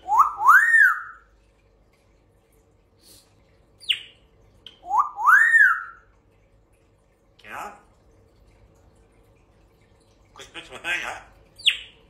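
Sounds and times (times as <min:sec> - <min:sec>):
high falling chirp: 0:00.0 - 0:01.2, 0:04.8 - 0:06.0
parrot whistling: 0:00.0 - 0:01.2, 0:04.7 - 0:06.0.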